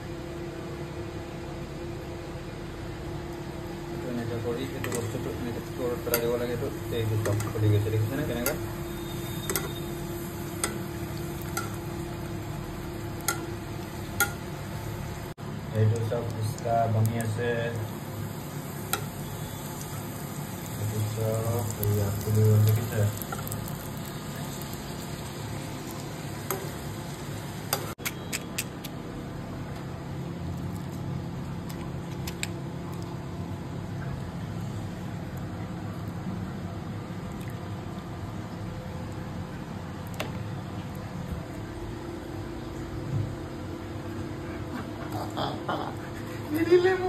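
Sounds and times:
dough sizzling in hot oil: 3.0 - 28.0
spoon ladling oil: 6.0 - 11.8
metal spoon clinking against pan: 8.3 - 8.7, 9.4 - 9.8.

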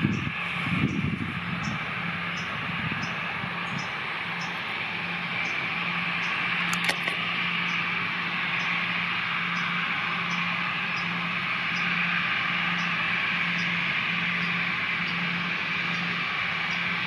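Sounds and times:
jet engines running: 0.0 - 17.0
sharp click: 6.7 - 7.2.

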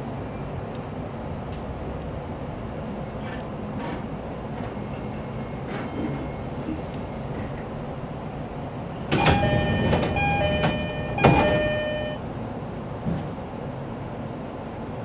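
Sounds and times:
train car rumble: 0.0 - 15.0
train doors sliding with a thud: 3.2 - 7.8, 8.9 - 12.2, 12.9 - 13.6
two-note door chime: 9.2 - 12.2.

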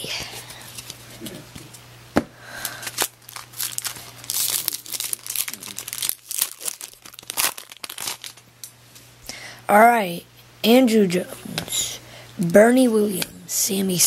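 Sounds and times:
foil wrapper crinkling and tearing: 2.6 - 8.5.

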